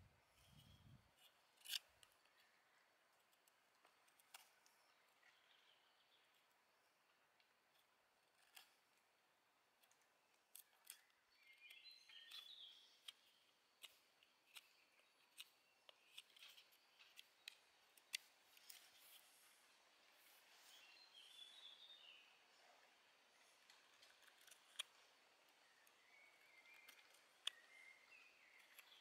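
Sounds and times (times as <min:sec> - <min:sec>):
knife cutting dry wood: 0:00.6 - 0:02.6, 0:09.8 - 0:19.4, 0:24.0 - 0:29.0
bird chirping: 0:04.1 - 0:06.9, 0:10.5 - 0:29.0.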